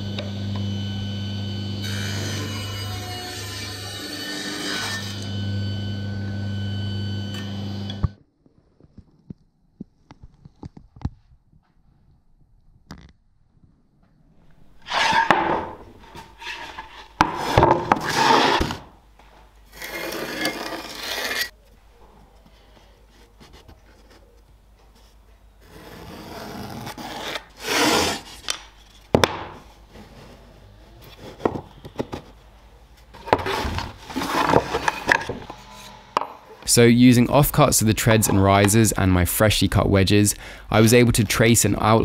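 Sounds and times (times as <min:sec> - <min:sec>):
wood scraping across a workbench: 0:14.8 - 0:18.9, 0:33.2 - 0:36.0.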